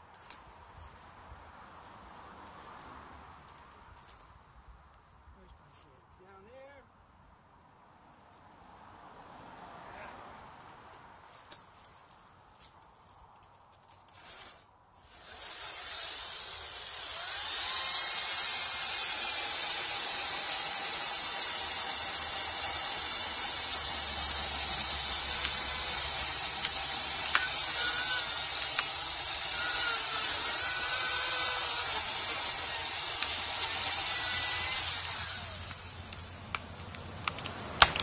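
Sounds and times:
chainsaw cutting wood: 14.1 - 38.0.

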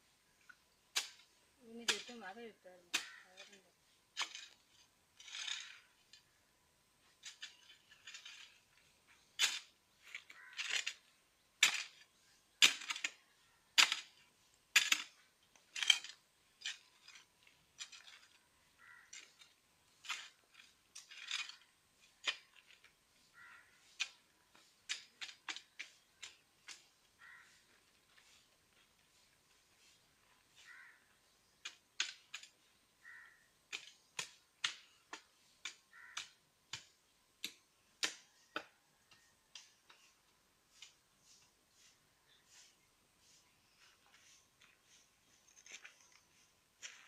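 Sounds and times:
hand tool knocking and scraping soil: 0.4 - 6.4, 7.0 - 47.0.

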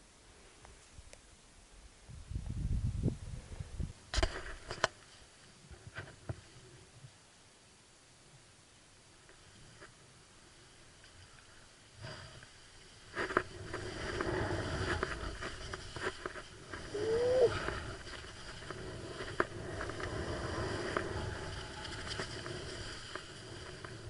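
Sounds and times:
skis scraping over snow: 12.0 - 24.0.

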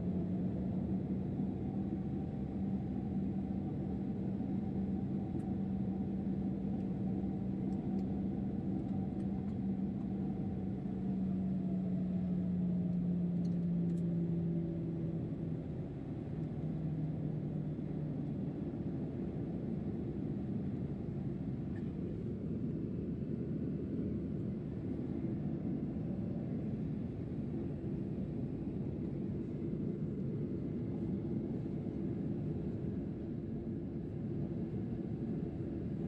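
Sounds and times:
jet engine drone in cabin: 0.0 - 36.0.

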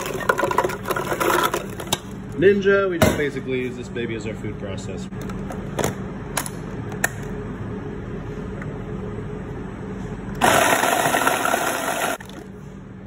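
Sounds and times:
blender motor chopping food: 10.4 - 12.2.

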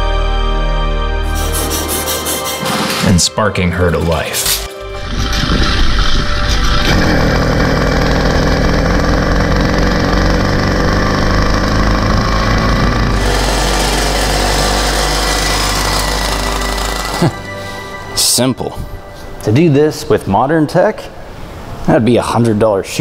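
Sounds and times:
two-stroke bicycle engine buzzing: 7.0 - 17.6.

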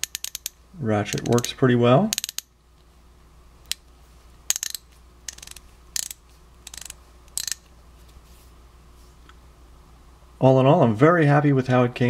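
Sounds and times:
ratchet clicking: 0.0 - 1.5, 2.1 - 2.5, 4.5 - 7.7.

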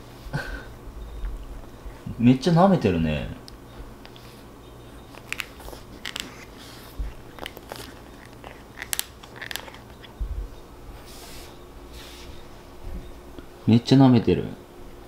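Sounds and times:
soft low thumps: 10.2 - 10.6.

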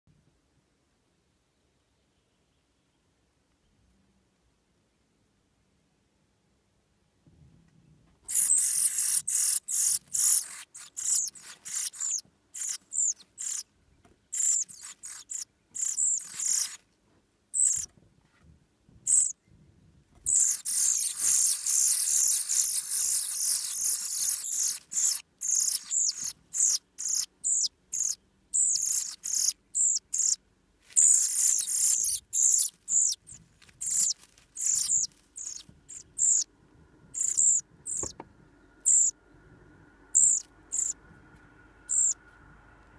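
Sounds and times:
nestlings begging calls: 8.3 - 13.6, 14.3 - 16.8, 17.5 - 17.9, 19.1 - 19.3, 20.3 - 36.5, 37.2 - 38.2, 38.8 - 39.1, 40.1 - 41.0, 41.9 - 42.2.

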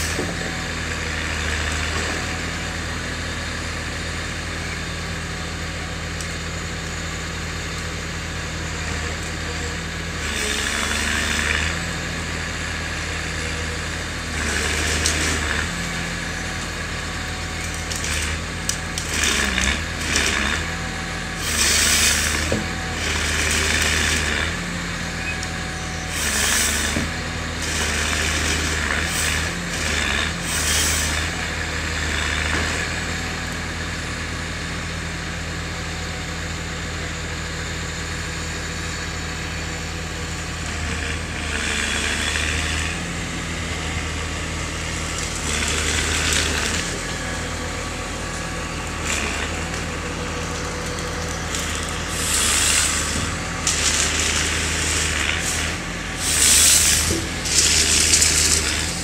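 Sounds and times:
diesel engine running: 0.0 - 59.0
harvester head cutting log: 17.7 - 24.8, 26.1 - 31.4, 45.0 - 47.3, 48.3 - 59.0.

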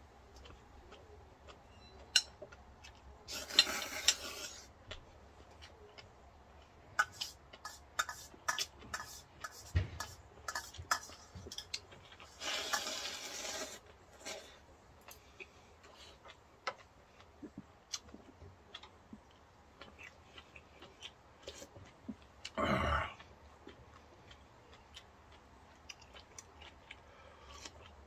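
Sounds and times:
slurping noodles: 3.3 - 4.7, 12.3 - 14.5.

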